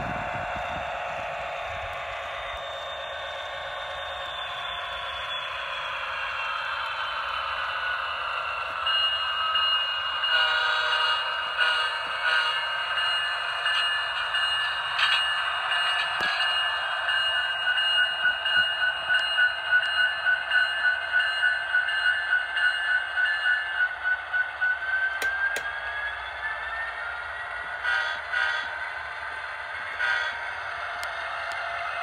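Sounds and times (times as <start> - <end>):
diesel locomotive sounds from speaker: 0.0 - 32.0
sharp clicks: 25.2 - 25.7.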